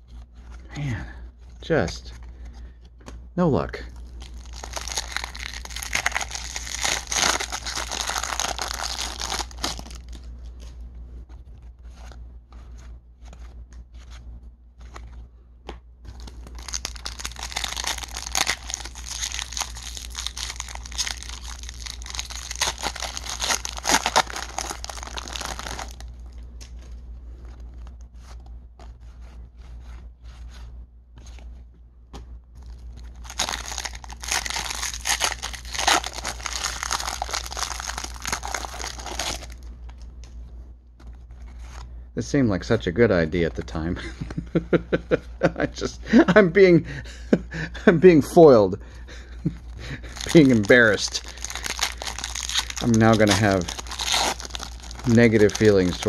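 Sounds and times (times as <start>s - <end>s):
foil wrappers crinkling: 3.9s - 10.7s, 16.1s - 28.0s, 32.6s - 40.1s, 49.4s - 56.0s.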